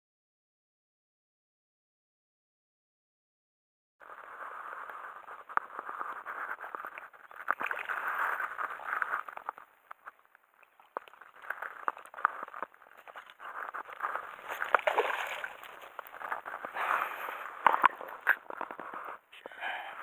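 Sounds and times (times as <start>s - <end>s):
fish splashing at water surface: 6.8s - 9.5s, 14.2s - 18.5s.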